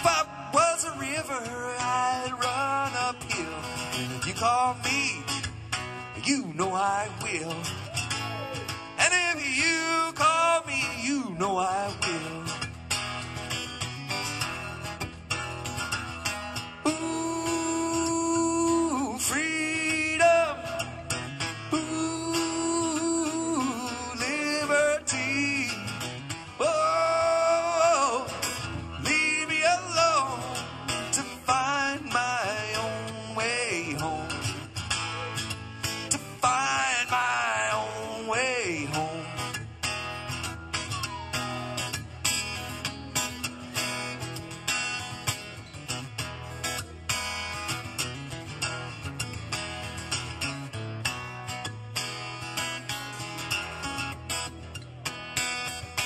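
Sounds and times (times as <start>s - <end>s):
acoustic guitar playing: 0.0s - 56.0s
man singing long held notes: 16.8s - 26.0s, 26.6s - 35.5s.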